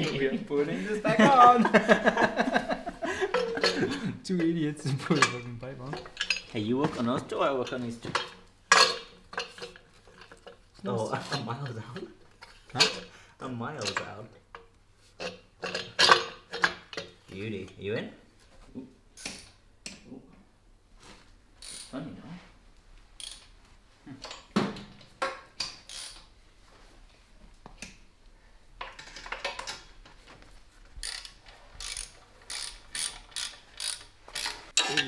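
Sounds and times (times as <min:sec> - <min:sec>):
tools knocking and clinking: 0:03.3 - 0:07.3, 0:08.0 - 0:10.6, 0:11.3 - 0:13.1, 0:13.8 - 0:17.2, 0:24.2 - 0:26.2, 0:31.0 - 0:35.0
ratchet wrench clicking: 0:23.2 - 0:23.4, 0:25.7 - 0:26.2, 0:31.0 - 0:34.7.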